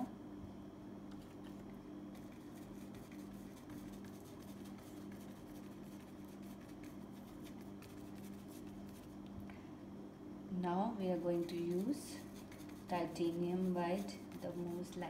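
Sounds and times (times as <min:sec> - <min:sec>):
steady low hum: 0:00.0 - 0:15.0
paintbrush dabbing on canvas: 0:02.2 - 0:09.2, 0:11.3 - 0:15.0.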